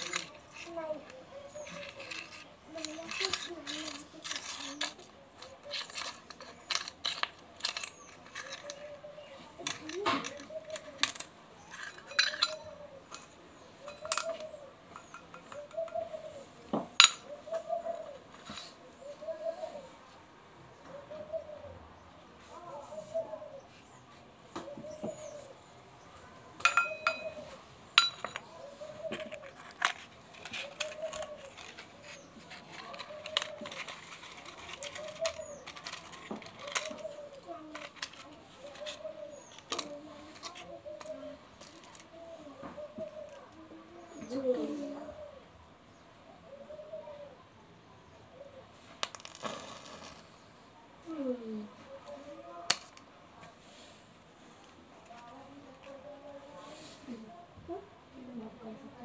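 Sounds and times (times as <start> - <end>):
coins clinking in steel bowl: 0.0 - 9.0, 9.6 - 16.0, 17.0 - 17.3, 17.9 - 18.8, 26.6 - 28.5, 29.1 - 42.0
glass bottle clinking on stone: 11.0 - 13.2, 26.6 - 27.4, 28.0 - 28.5
soft cooing: 15.4 - 16.6, 17.2 - 20.0, 20.9 - 21.8, 22.5 - 23.7, 30.5 - 45.5, 46.4 - 47.5, 51.0 - 52.6.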